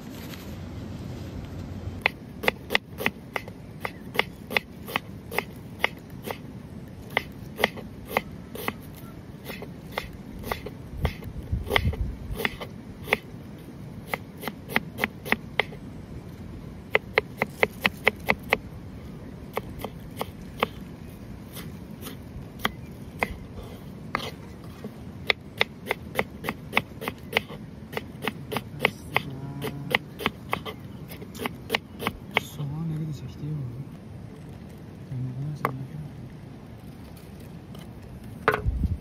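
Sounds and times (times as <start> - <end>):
knife slicing onion on cutting board: 2.0 - 6.4, 7.1 - 8.8, 9.4 - 13.2, 14.1 - 15.8, 24.2 - 24.4, 25.2 - 32.5.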